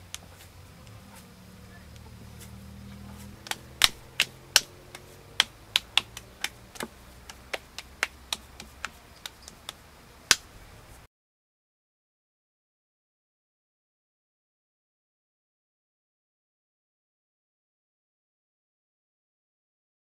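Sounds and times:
hands patting wet clay: 2.3s - 10.5s.

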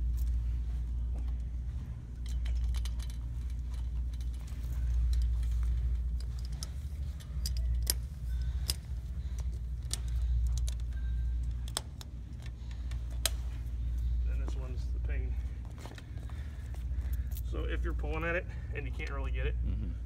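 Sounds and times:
keys jangling: 2.1s - 13.4s, 15.8s - 17.6s
snap fasteners clicking: 2.2s - 13.4s.

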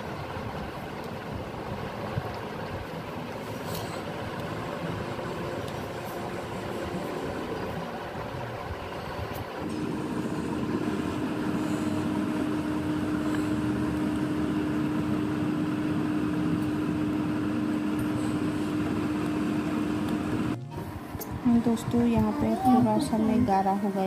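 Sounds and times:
machine humming: 0.0s - 24.0s.

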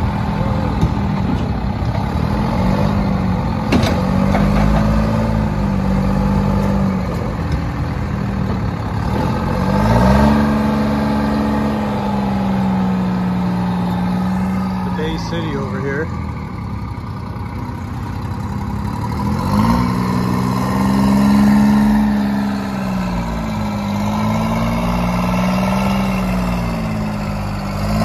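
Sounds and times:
diesel engine revving: 0.0s - 28.0s.

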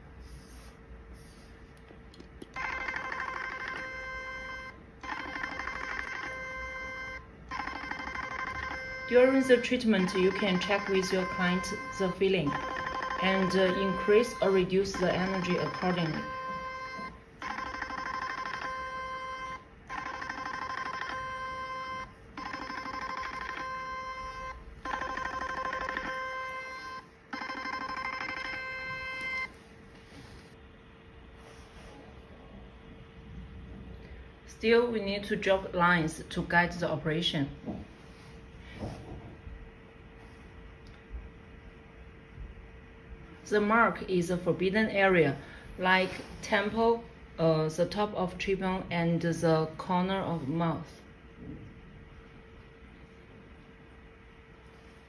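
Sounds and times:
rapid pulsing electronic beep: 10.0s - 29.5s.

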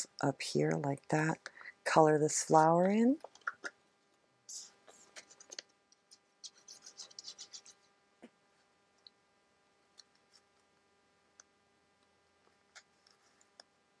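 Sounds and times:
pen scratching on paper: 6.1s - 7.8s.

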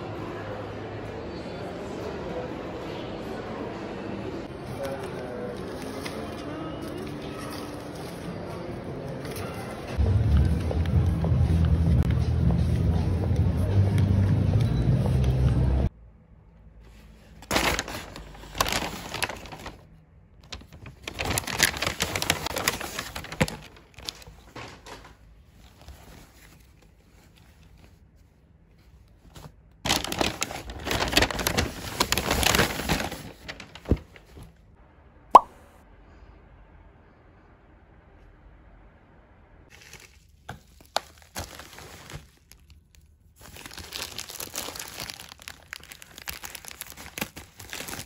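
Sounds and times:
loud busy din: 0.0s - 15.9s
paper and fabric rustling: 4.7s - 9.9s, 16.8s - 34.6s, 39.7s - 48.0s.

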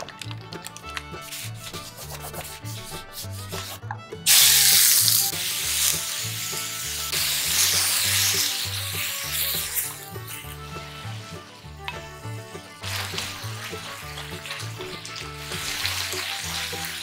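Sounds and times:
light background music: 0.0s - 17.0s
pork sizzling in hot oil: 4.3s - 17.0s.

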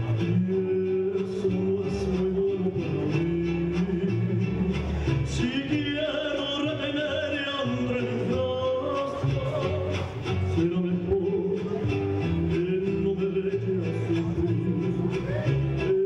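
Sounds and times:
guitar accompaniment: 0.0s - 16.0s
man singing into microphone: 0.0s - 16.0s.

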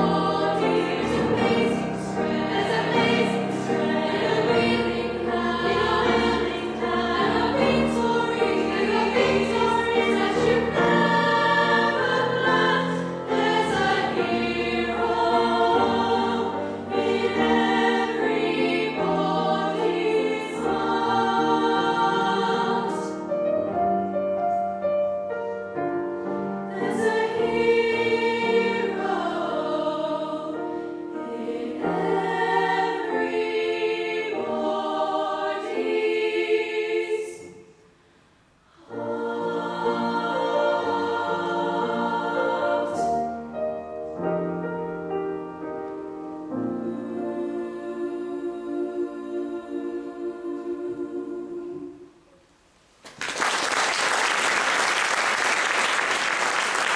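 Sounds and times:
youth choir singing: 0.0s - 23.4s, 26.7s - 37.8s, 38.7s - 43.4s, 46.6s - 52.2s
piano accompaniment: 0.0s - 36.2s, 38.9s - 49.8s.

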